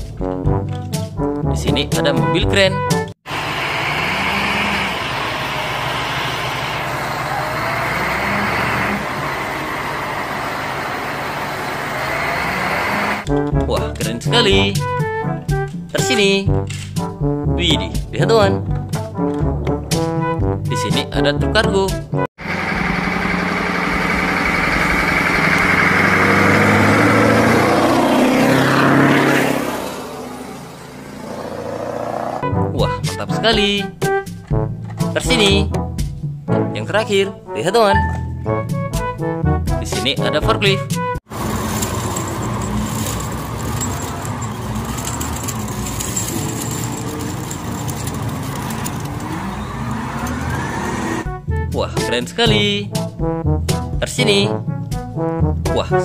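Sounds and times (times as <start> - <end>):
diesel engine running: 3.2 - 13.3, 22.4 - 32.5, 41.3 - 51.4.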